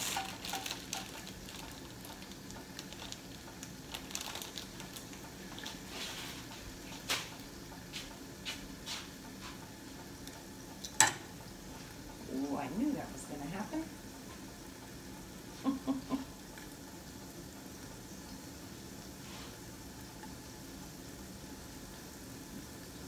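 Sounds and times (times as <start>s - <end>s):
tongs clacking on pan: 0.0s - 1.4s, 10.8s - 11.3s
food sizzling in skillet: 0.0s - 15.5s, 16.1s - 23.0s.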